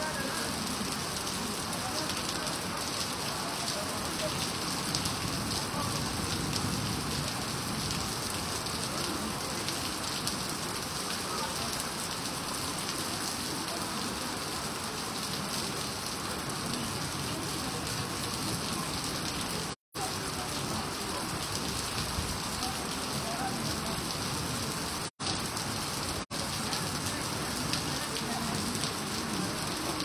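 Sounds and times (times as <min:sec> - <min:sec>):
rain splashing into water: 0:00.0 - 0:30.0.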